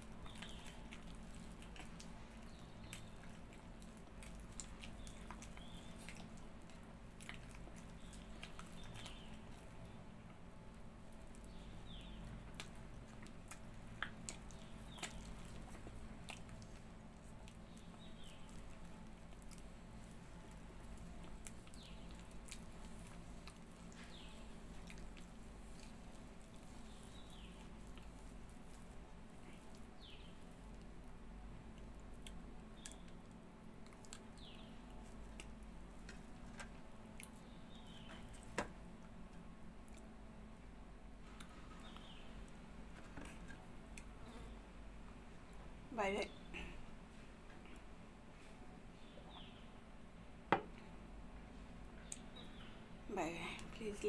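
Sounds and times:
person chewing wetly: 0.0 - 39.2.

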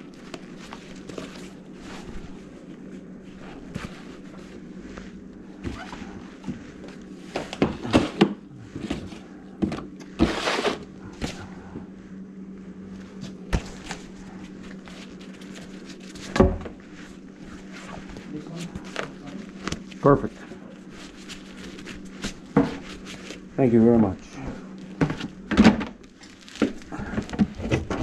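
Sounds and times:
low hum: 0.0 - 28.0.

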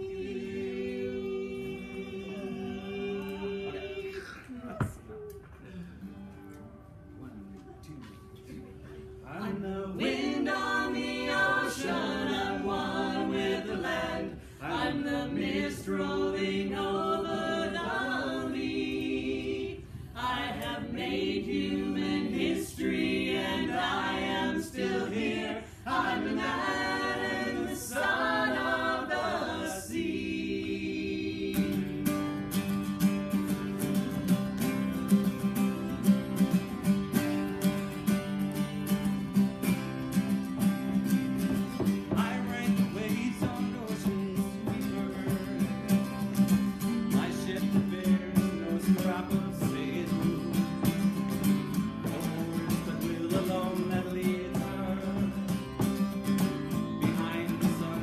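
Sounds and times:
people singing in harmony: 0.0 - 4.6, 8.9 - 32.7, 41.0 - 58.0
acoustic guitar strumming: 9.3 - 19.6, 31.4 - 58.0.

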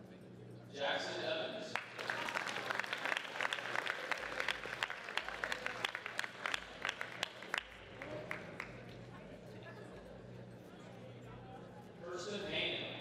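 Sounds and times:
audience applauding: 1.7 - 9.0.

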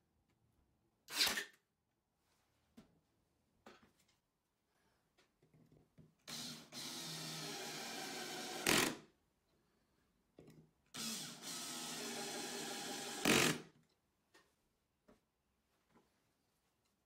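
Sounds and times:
drill driving screws into wood: 1.1 - 1.6, 6.3 - 9.0, 11.0 - 13.7.

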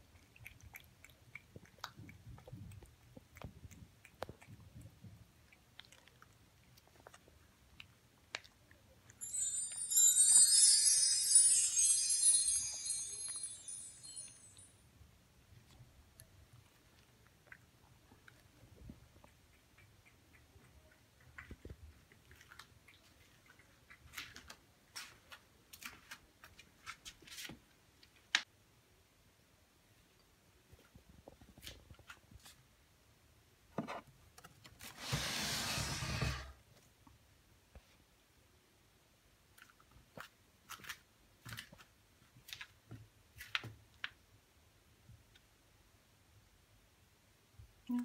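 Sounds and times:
cat crunching dry kibble: 0.2 - 8.7.

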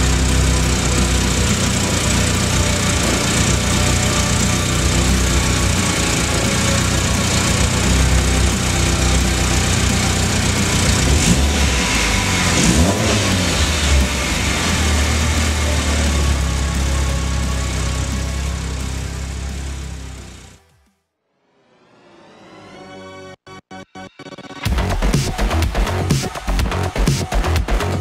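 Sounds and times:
car engine idling: 0.0 - 20.7.

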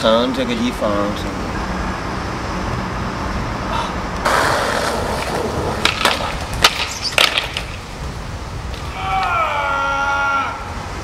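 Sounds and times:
skateboard clacking on ground: 4.2 - 7.9
skateboard wheels rolling on stone: 4.2 - 9.4.

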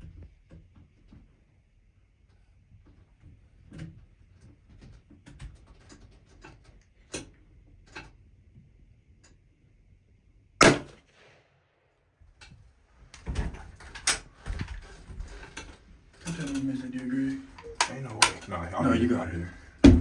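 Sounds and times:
rustling and knocks of movement: 0.0 - 9.6, 12.3 - 20.0
loud gunshot: 10.6 - 11.8.

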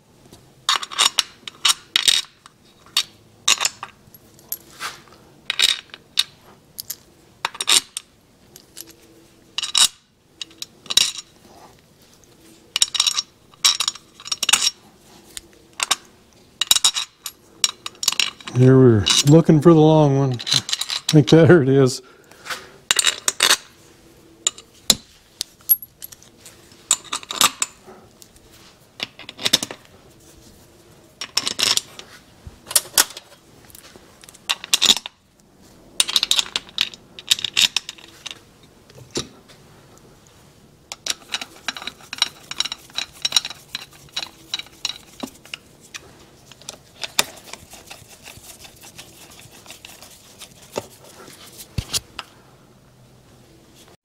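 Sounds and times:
screws clinking on metal: 20.3 - 21.4, 40.9 - 50.8.

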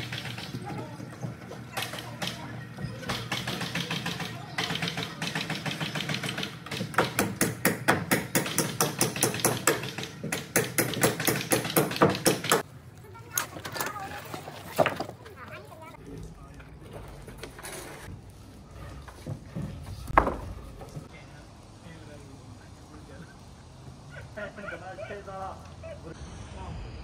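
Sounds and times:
workers' voices: 0.0 - 27.0
steady low drone: 26.1 - 27.0.

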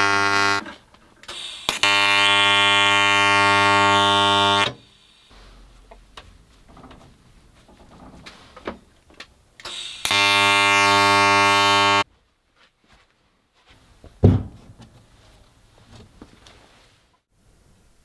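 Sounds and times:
welding arc buzzing: 0.0 - 0.7, 1.3 - 4.8, 9.7 - 12.0
metal thump on wooden bench: 14.2 - 14.8.

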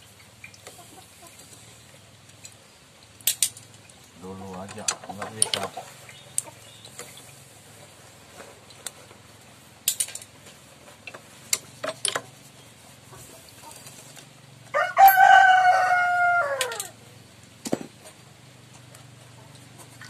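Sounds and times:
rooster crowing: 14.7 - 17.0.

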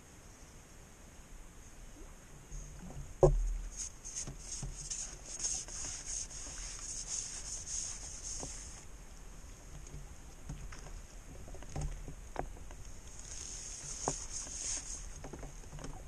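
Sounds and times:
scraping rubs: 3.7 - 8.9, 13.1 - 15.4.

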